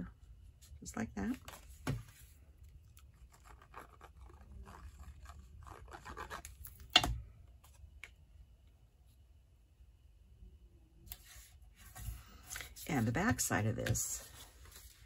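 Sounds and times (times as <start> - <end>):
paper scratching and rubbing: 3.1 - 6.6.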